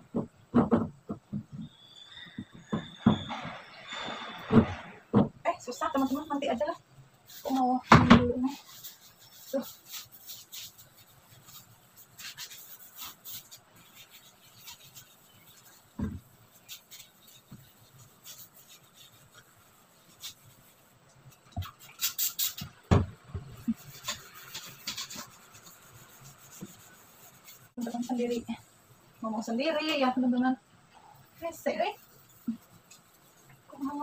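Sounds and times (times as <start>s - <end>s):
knocks and scraping: 0.0s - 6.6s, 7.3s - 28.7s
sponge scrubbing metal filter: 8.4s - 22.8s, 23.5s - 28.6s.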